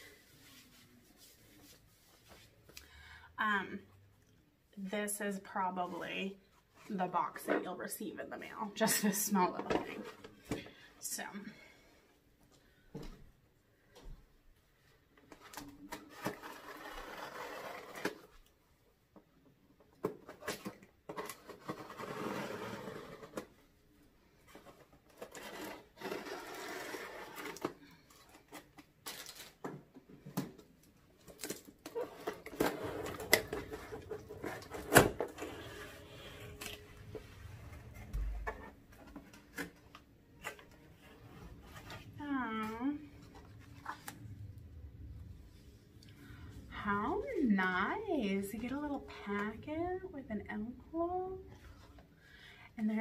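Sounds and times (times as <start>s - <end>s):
plastic wrap crinkling: 25.1s - 29.7s.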